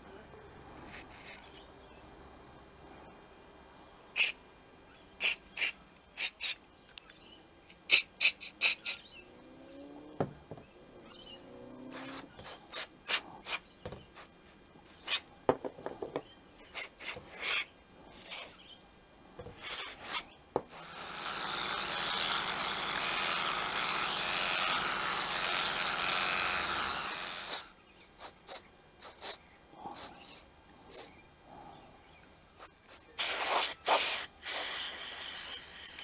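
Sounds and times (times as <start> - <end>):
loud steady spray hiss: 5.2 - 6.6, 20.7 - 30.2, 32.6 - 36.0.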